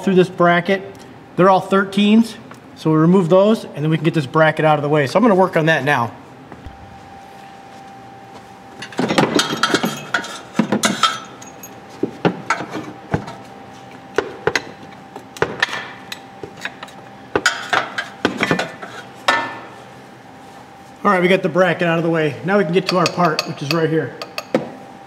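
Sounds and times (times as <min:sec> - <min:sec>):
metal clinks and knocks: 0:08.8 - 0:11.8.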